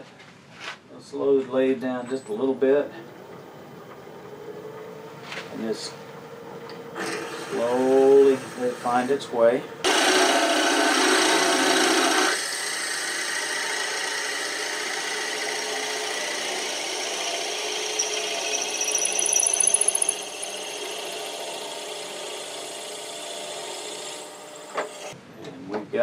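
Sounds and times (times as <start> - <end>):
drill bit boring into wood: 9.9 - 24.1
wood lathe running: 9.9 - 24.5.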